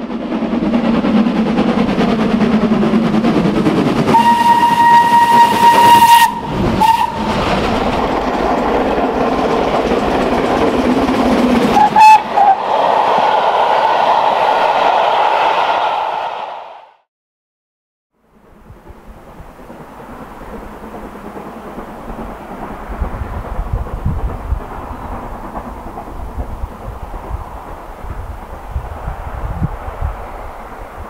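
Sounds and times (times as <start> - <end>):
steam locomotive rumbling: 0.0 - 16.9, 18.2 - 31.0
steam whistle blasts and toots: 4.1 - 7.4, 11.8 - 12.7.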